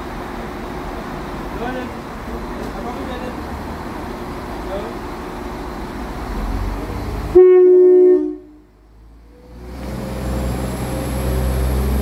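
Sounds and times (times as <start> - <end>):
low train rumble: 0.0 - 12.0
train horn two-note blast: 7.3 - 8.7.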